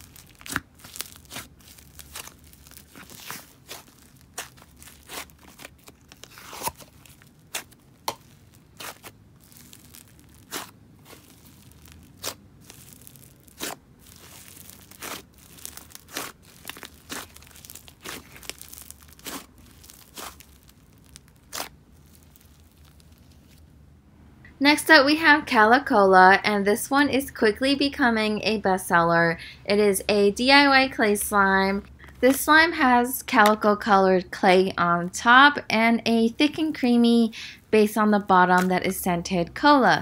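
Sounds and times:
slime crackling and popping: 0:00.0 - 0:23.6, 0:38.4 - 0:39.0.

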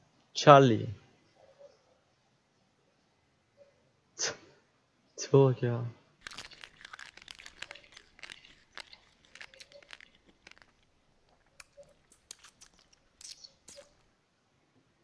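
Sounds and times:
crunchy chewing: 0:06.2 - 0:14.1.

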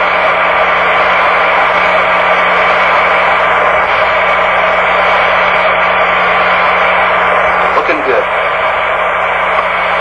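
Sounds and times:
constant low hum: 0:00.0 - 0:10.0.

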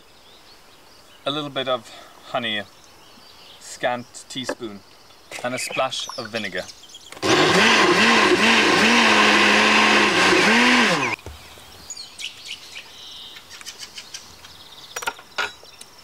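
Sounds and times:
birds chirping faintly: 0:00.0 - 0:07.3, 0:10.6 - 0:16.0
blender running: 0:07.2 - 0:11.2.

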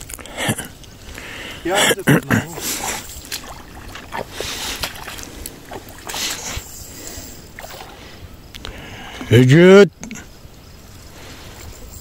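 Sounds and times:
water splashing and sloshing: 0:00.0 - 0:09.2.

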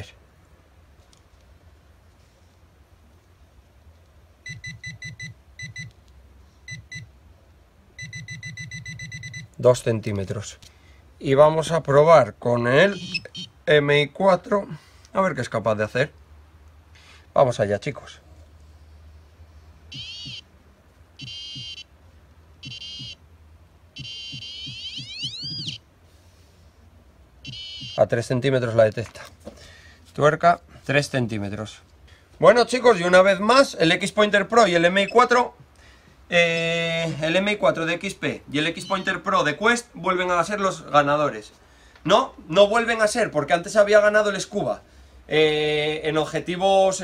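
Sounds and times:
metal detector short high beeps: 0:12.9 - 0:13.5, 0:21.2 - 0:21.8, 0:22.6 - 0:23.2, 0:24.0 - 0:25.8, 0:27.4 - 0:28.0, 0:38.8 - 0:39.2.

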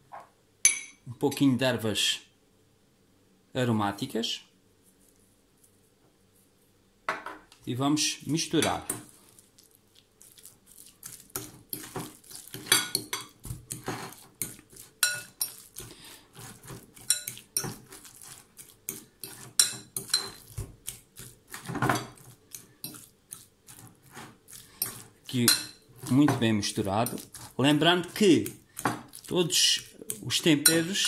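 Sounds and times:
fork scraping a glass bowl: 0:10.4 - 0:26.4, 0:27.0 - 0:31.0.

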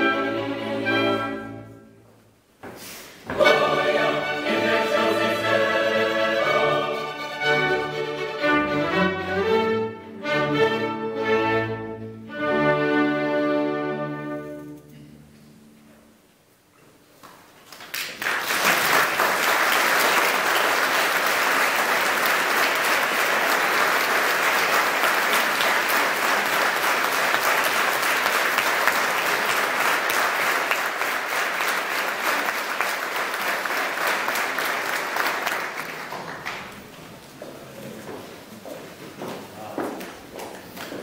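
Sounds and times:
audience applause: 0:17.7 - 0:36.9.

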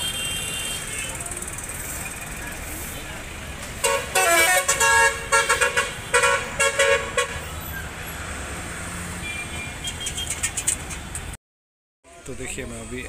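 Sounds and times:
vehicle horn honking: 0:00.0 - 0:01.3, 0:03.8 - 0:07.5, 0:09.2 - 0:10.2
street traffic rumble: 0:00.0 - 0:11.4, 0:12.1 - 0:13.0.

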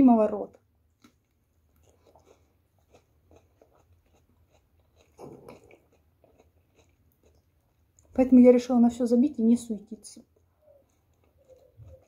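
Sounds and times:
chewing crunchy food: 0:00.4 - 0:08.6, 0:10.1 - 0:12.0.

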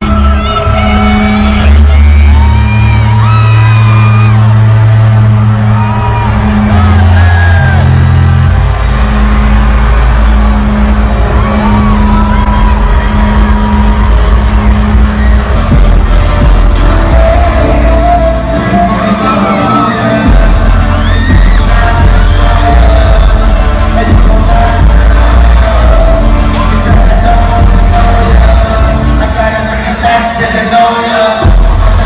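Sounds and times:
deep bass notes: 0:00.0 - 0:30.2, 0:31.4 - 0:32.0
pulsing beat: 0:01.3 - 0:29.2
sung vocal line: 0:16.8 - 0:32.0.

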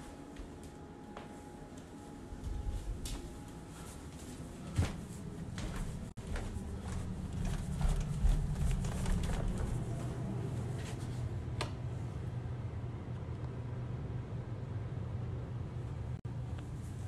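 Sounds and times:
footsteps going down stairs: 0:00.2 - 0:11.2
phone handling rumble: 0:07.2 - 0:10.3.

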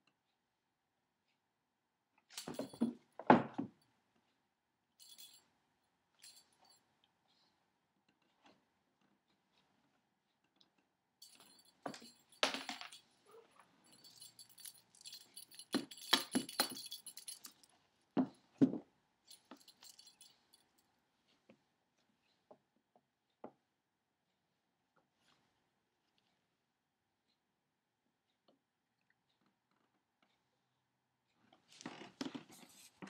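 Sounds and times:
small bell jingling: 0:05.0 - 0:05.4, 0:11.2 - 0:17.7, 0:19.3 - 0:20.7.

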